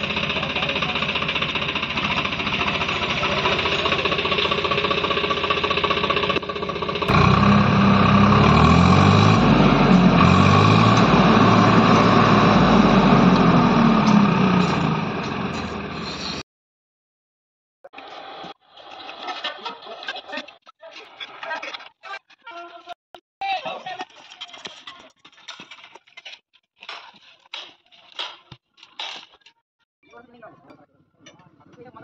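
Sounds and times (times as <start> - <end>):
tractor diesel engine revving: 0.0 - 16.4.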